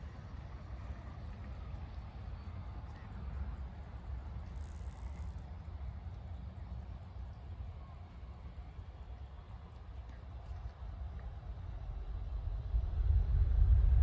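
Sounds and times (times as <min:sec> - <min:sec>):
wind buffeting microphone: 0:11.6 - 0:14.0.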